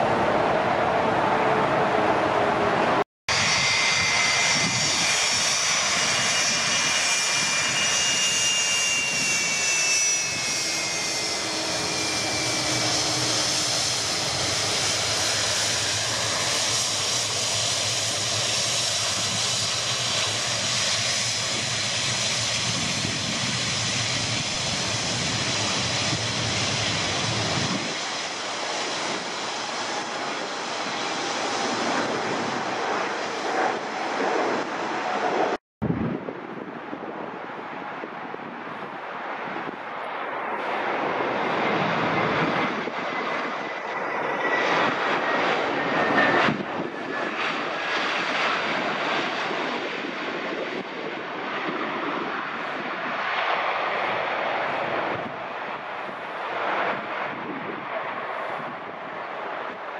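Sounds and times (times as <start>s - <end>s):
jet engines rushing: 0.0s - 59.9s.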